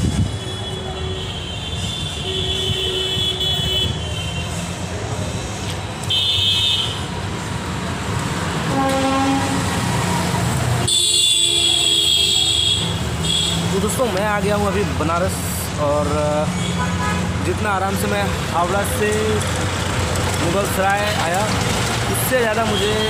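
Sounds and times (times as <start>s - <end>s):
traffic rumble: 0.0s - 23.0s
vehicle horns honking: 0.2s - 4.7s, 6.1s - 7.1s, 8.7s - 9.8s, 10.8s - 13.7s, 16.5s - 17.3s.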